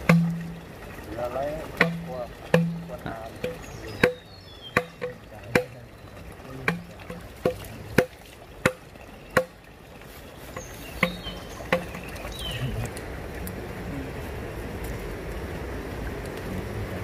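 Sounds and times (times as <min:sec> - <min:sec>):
chopping blows with ringing tone: 0:01.8 - 0:05.9
bird chirps: 0:02.1 - 0:06.2, 0:10.2 - 0:12.9.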